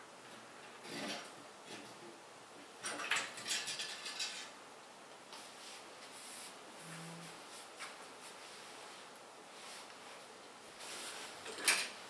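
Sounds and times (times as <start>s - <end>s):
small parts and tools clinking: 2.8s - 4.6s, 11.4s - 12.0s.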